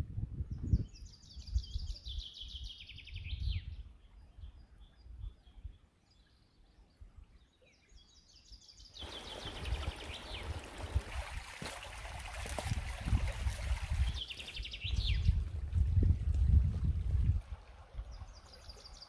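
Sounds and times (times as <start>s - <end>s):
small birds chirping: 0.5s - 12.0s, 13.7s - 15.6s, 17.9s - 19.0s
creek running over stones: 9.0s - 19.0s.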